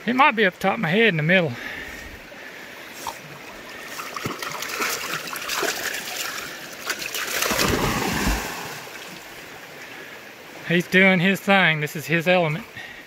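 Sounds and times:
dog splashing through water: 0:03.9 - 0:09.2.

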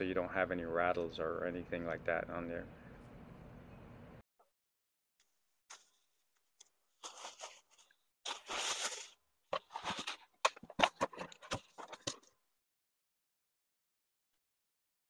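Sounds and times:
bubble wrap rustling: 0:07.0 - 0:10.2
packing paper rustling: 0:07.0 - 0:12.2.

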